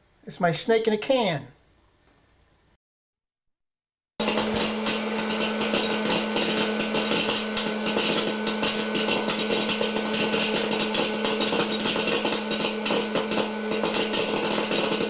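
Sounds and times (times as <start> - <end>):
motorized toy buzzing: 4.2 - 15.0.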